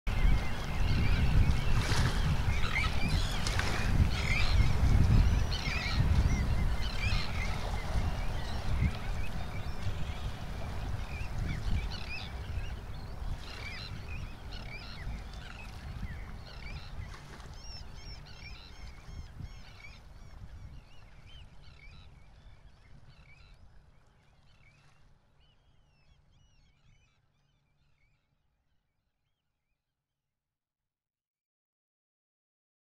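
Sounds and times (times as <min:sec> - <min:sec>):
low rumbling seashore: 0:00.1 - 0:22.7.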